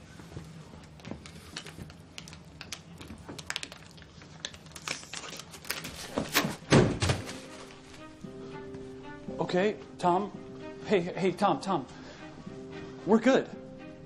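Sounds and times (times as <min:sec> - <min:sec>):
plastic water bottle crinkling: 0:00.8 - 0:08.0.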